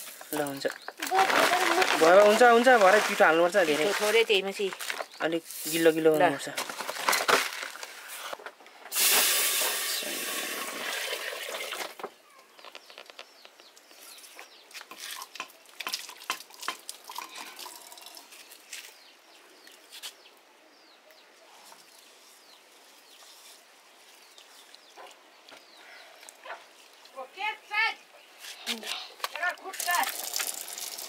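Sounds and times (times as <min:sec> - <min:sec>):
water gushing into metal pot: 0:08.9 - 0:11.9, 0:29.7 - 0:31.0
water splashing and clinking: 0:14.9 - 0:18.4, 0:29.3 - 0:31.0.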